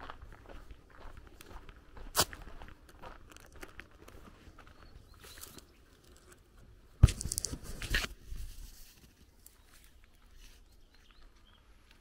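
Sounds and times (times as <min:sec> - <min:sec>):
footsteps on gravel: 0:00.0 - 0:05.8.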